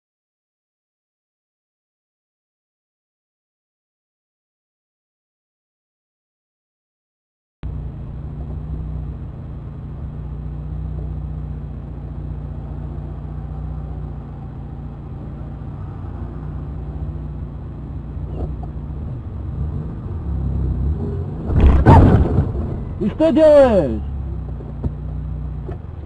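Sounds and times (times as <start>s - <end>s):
car engine drone: 7.6s - 26.0s
road noise: 7.6s - 26.0s.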